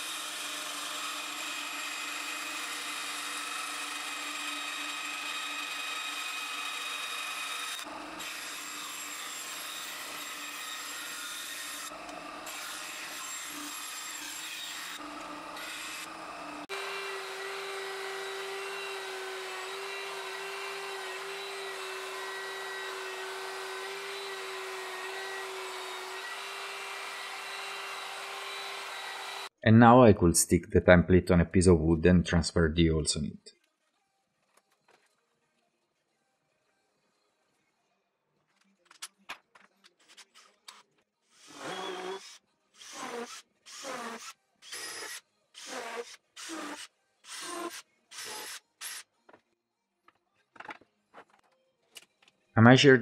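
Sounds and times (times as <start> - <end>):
bandsaw cutting plywood: 0.0 - 29.5, 41.4 - 49.0
belt sander humming: 15.0 - 29.5.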